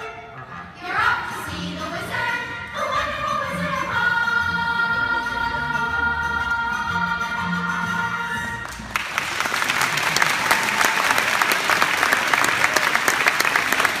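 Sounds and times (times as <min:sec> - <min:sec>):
audience applause: 0:08.7 - 0:14.0.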